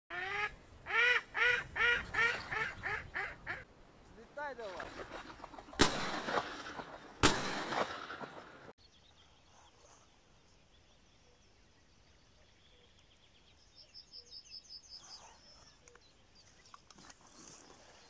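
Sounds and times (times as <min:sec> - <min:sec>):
small birds calling: 0:01.2 - 0:04.2, 0:08.8 - 0:18.0.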